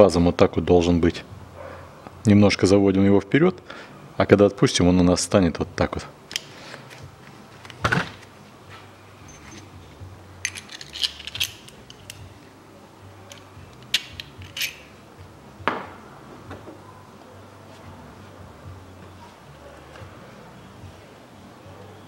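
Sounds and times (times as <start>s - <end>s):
metallic clinks and taps: 10.4s - 12.3s, 13.2s - 14.9s.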